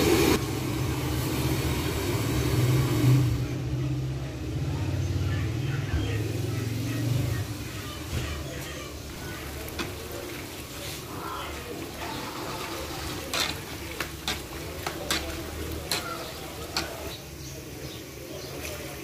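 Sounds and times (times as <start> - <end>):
dough frying in oil: 0.0 - 19.0
metal spoon knocking pan: 13.1 - 17.2.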